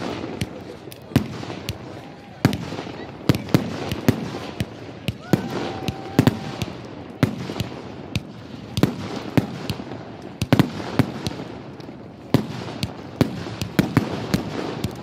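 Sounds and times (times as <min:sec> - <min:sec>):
fireworks bursting with echo: 0:00.0 - 0:15.0.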